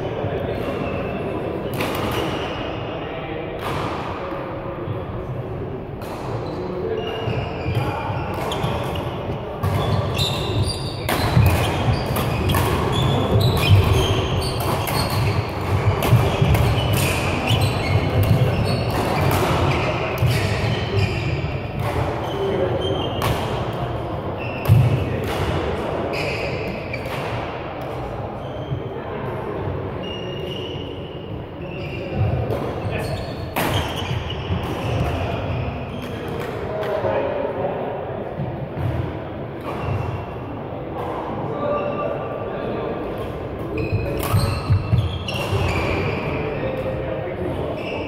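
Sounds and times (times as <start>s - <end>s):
shoes squeaking on court floor: 6.4s - 23.8s, 24.4s - 25.4s, 26.1s - 27.3s, 28.4s - 29.0s, 30.0s - 36.4s, 39.6s - 40.3s, 43.2s - 48.0s
racket striking shuttlecock: 14.6s - 20.6s.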